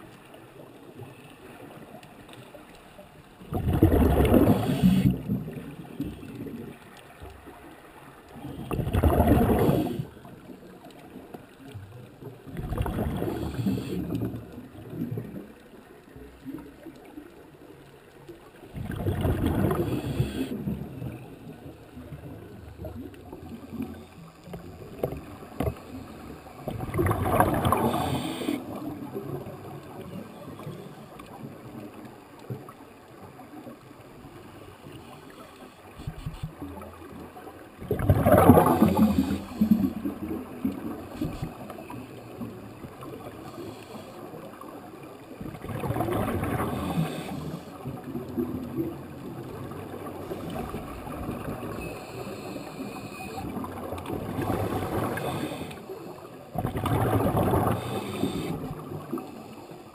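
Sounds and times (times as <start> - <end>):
underwater bubbles rushing: 0.0 - 35.0, 35.9 - 59.9
faint steady hiss: 0.0 - 59.9.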